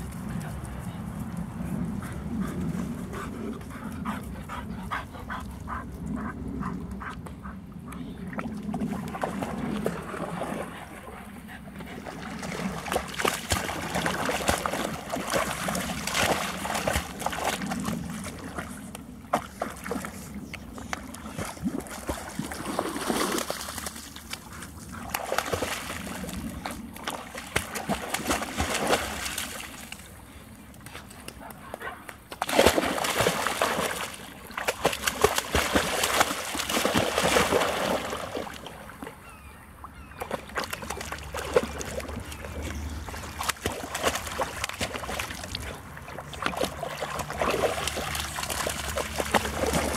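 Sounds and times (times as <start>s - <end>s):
water splashing as dog paddles: 8.2s - 30.2s, 32.2s - 49.9s.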